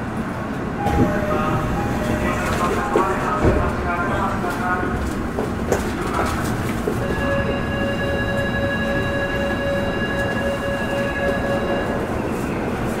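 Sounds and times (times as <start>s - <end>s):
subway train rumble: 0.0s - 13.0s.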